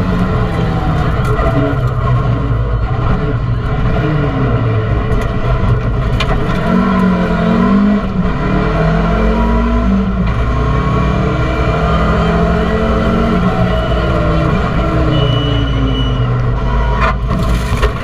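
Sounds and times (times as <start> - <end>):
rally car engine at full throttle: 0.0 - 18.0.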